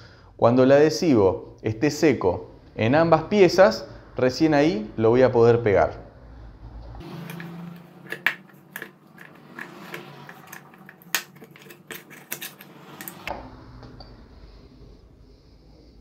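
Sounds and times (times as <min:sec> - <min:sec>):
small tools clicking on a workbench: 0:07.2 - 0:13.3.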